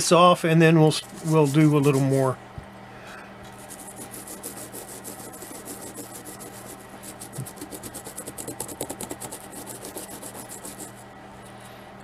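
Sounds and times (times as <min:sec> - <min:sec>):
toothbrush scrubbing plastic: 0:01.0 - 0:02.3, 0:03.5 - 0:11.0.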